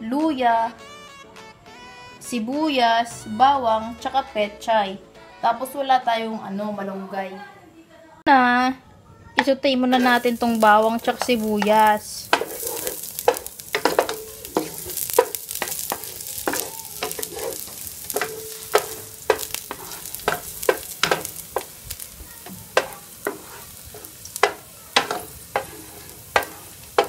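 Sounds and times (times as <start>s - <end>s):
garlic sizzling in oil: 10.0s - 27.0s
spatula scraping frying pan: 10.0s - 27.0s.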